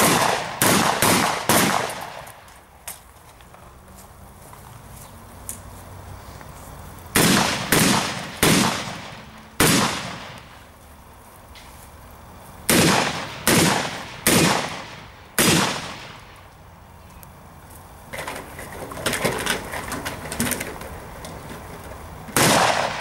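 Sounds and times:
shotgun shots with echo: 0.0 - 2.2, 7.2 - 10.4, 12.7 - 16.2, 22.4 - 23.0.

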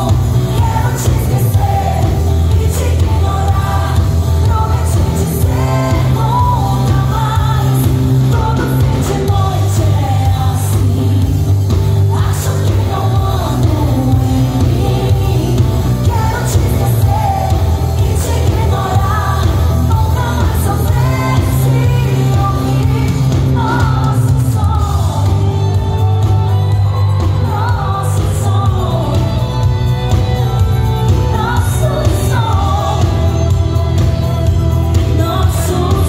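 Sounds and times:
bass line: 0.0 - 36.0
drums: 0.0 - 36.0
electric guitar: 0.0 - 36.0
woman singing: 0.0 - 36.0.

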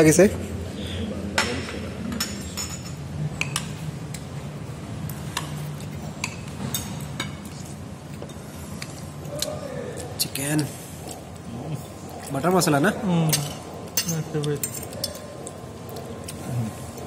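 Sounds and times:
metal spoons clinking on ceramic plates: 1.4 - 3.8, 13.3 - 15.4.

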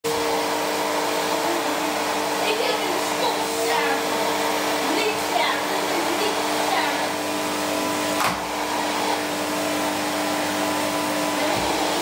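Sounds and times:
vacuum cleaner running: 0.0 - 12.0.

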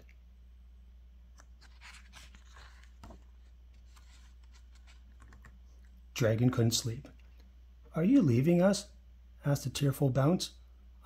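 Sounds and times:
low steady hum: 0.0 - 11.0
page turning rustle: 1.4 - 5.6.

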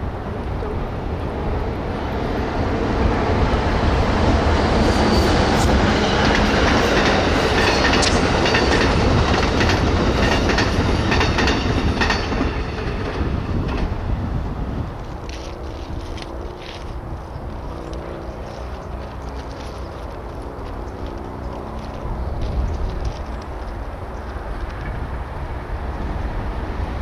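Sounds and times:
train rumble: 0.0 - 27.0
wheels clicking over rails: 5.8 - 14.0.

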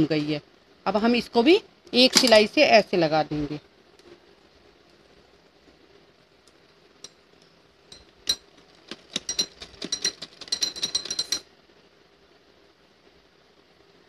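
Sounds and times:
bangles clinking: 9.1 - 11.5.

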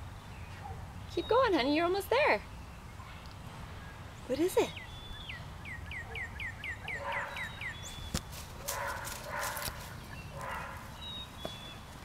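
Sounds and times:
songbird whistling: 4.7 - 8.3
distant dog barking: 6.0 - 7.7, 8.6 - 11.0.

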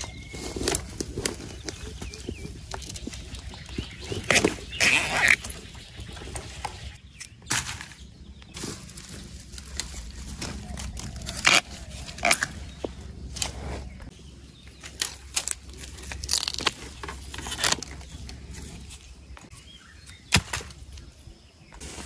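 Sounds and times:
leaves and twigs rustling: 0.0 - 22.0
twigs snapping: 7.2 - 13.5, 14.8 - 21.1.

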